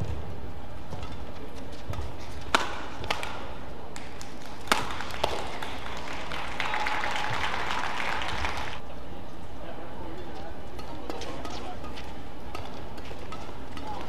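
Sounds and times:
crowd noise: 0:00.0 - 0:14.0
badminton racket hitting shuttlecock: 0:00.8 - 0:05.7, 0:10.8 - 0:14.0.

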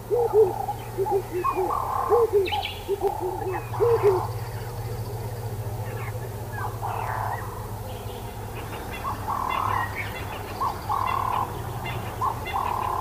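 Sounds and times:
animal calls: 0:00.0 - 0:04.7, 0:08.4 - 0:13.0
steady low hum: 0:00.0 - 0:13.0.

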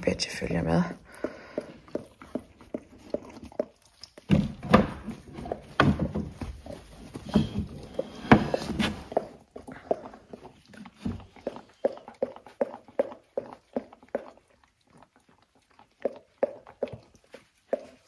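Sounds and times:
dog breathing rhythmically: 0:00.7 - 0:03.8, 0:04.9 - 0:18.0
paws scrabbling on floor: 0:05.0 - 0:13.5.

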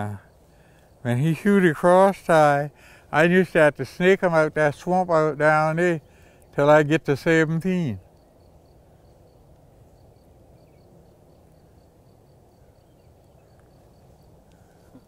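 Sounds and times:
insect chirping: 0:00.0 - 0:15.0
low hum of noise: 0:00.0 - 0:15.0.

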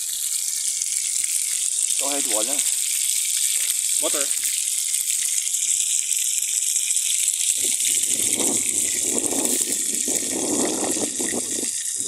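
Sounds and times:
fish frying in hot oil: 0:00.0 - 0:12.0
oil pouring from a bottle: 0:00.0 - 0:12.0.

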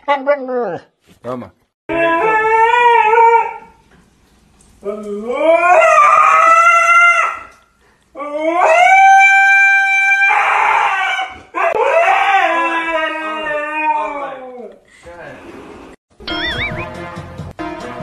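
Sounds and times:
dog howling: 0:01.9 - 0:03.8, 0:04.8 - 0:07.5, 0:08.2 - 0:14.8.

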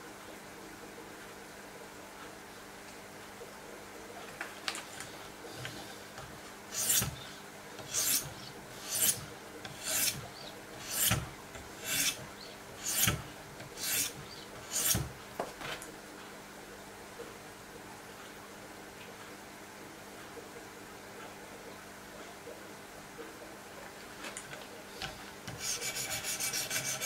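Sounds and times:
sharpening stone scraping blade: 0:06.7 - 0:07.2, 0:07.8 - 0:10.2, 0:10.8 - 0:11.2, 0:11.8 - 0:12.2, 0:12.8 - 0:13.2, 0:13.8 - 0:15.0.

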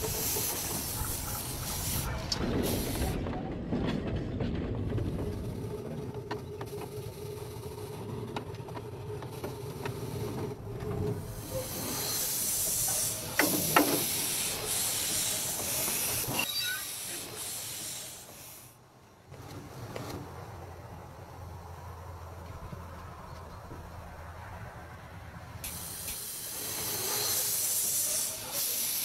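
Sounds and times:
steam hissing: 0:00.0 - 0:03.2, 0:09.3 - 0:18.8, 0:25.6 - 0:29.0
miniature locomotive rumbling: 0:00.0 - 0:29.0.

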